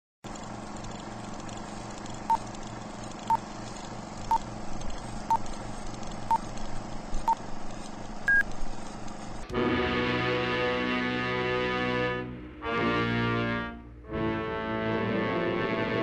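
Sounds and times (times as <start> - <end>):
projector hiss and hum: 0.3 - 10.8.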